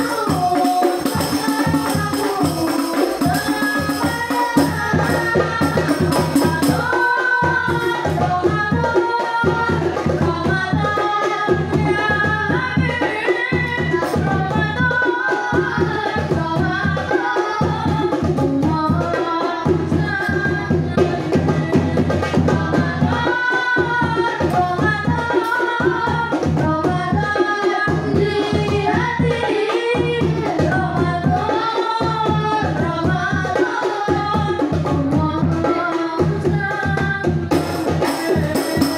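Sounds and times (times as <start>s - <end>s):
boys singing devotional song: 0.0s - 38.9s
jingling percussion: 0.0s - 38.9s.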